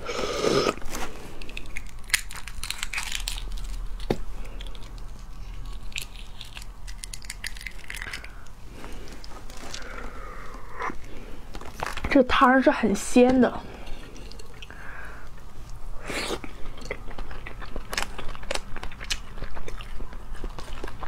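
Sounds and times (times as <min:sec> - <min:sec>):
eating sounds: 0:00.0 - 0:12.0, 0:13.8 - 0:21.0
eggshell cracking and peeling: 0:01.4 - 0:08.6.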